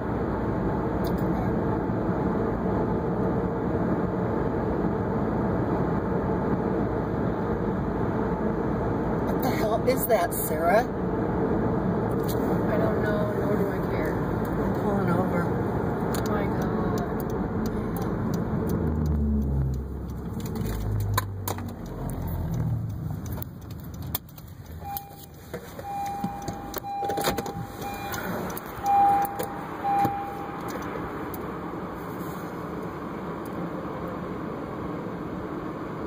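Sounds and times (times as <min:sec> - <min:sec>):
road noise inside moving car: 0:00.0 - 0:36.0
phone handling clicks and rattles: 0:23.2 - 0:30.9
steady mid-pitched tone: 0:24.8 - 0:31.2.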